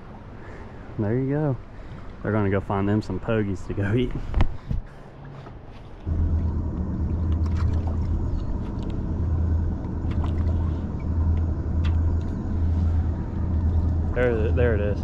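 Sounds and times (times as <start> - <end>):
boat motor humming: 5.5 - 15.0.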